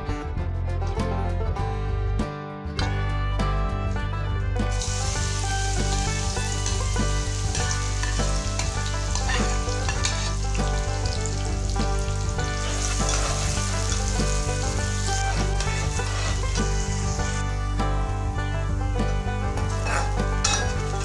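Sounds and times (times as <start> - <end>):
background music: 0.0 - 21.0
onion sizzling in hot oil: 4.7 - 21.0
ladle stirring in a wok: 4.8 - 17.4.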